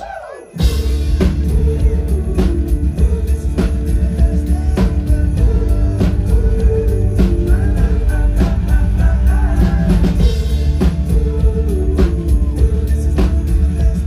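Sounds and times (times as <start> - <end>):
drum kit beat: 0.0 - 14.0
live rock band playing: 0.5 - 14.0.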